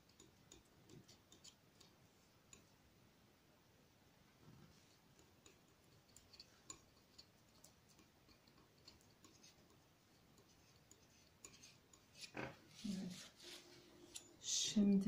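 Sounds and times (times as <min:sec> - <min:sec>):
palette knife scraping paint: 0:04.9 - 0:14.3.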